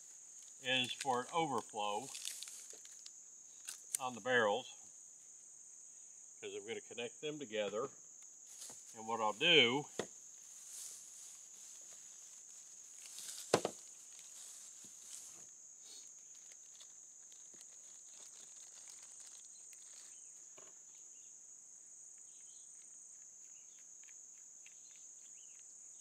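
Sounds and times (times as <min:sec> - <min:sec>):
insects buzzing in grass: 0:00.0 - 0:26.0
plastic bag crinkling: 0:02.1 - 0:03.9, 0:16.6 - 0:20.1.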